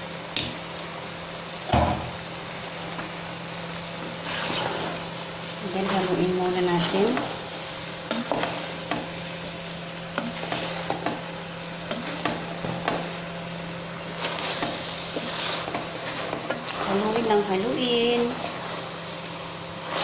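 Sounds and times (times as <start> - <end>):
food cooking hiss: 0.0 - 20.0
wooden spatula scraping pot: 4.1 - 5.1, 10.2 - 13.2, 14.0 - 19.1, 19.7 - 20.0.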